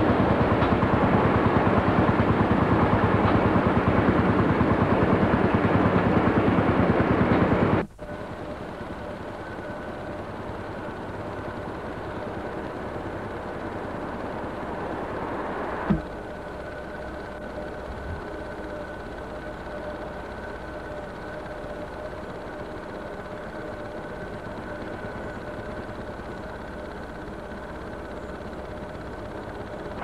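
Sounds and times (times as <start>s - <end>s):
quiet steady hum with whine: 0.0s - 30.0s
vehicle engine running loudly: 0.0s - 30.0s.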